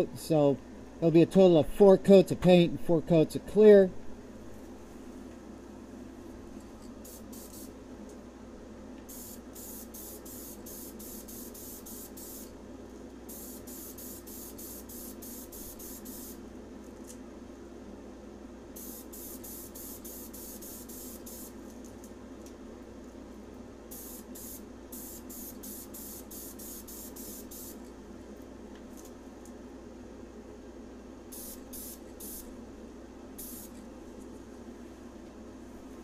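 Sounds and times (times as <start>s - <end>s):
aerosol spray can hissing: 7.0s - 7.7s, 9.1s - 12.5s, 13.3s - 16.4s, 18.8s - 21.6s, 23.9s - 27.8s, 31.4s - 32.5s, 33.4s - 33.8s.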